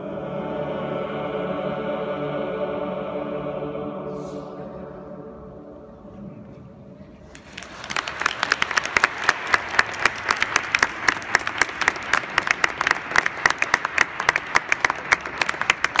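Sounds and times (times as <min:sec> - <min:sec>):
audience applauding: 0:07.2 - 0:16.0
sharp close hand claps: 0:07.3 - 0:16.0.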